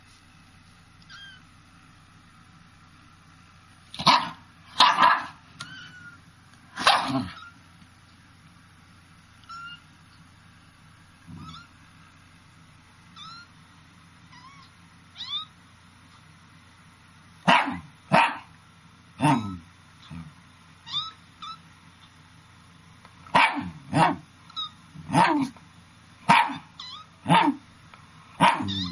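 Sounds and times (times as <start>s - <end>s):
faint squeaky chirps: 1.0s - 1.6s, 5.6s - 6.3s, 7.2s - 8.3s, 9.3s - 10.4s, 11.3s - 11.9s, 13.1s - 15.6s, 19.2s - 22.2s, 24.5s - 24.9s, 26.7s - 27.2s, 28.5s - 28.9s
loud animal calls: 28.4s - 28.9s.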